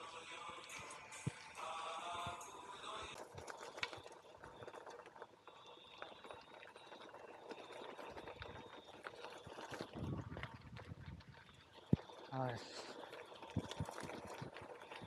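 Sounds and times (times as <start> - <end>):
bicycle tyres on wet gravel: 3.2 - 15.0.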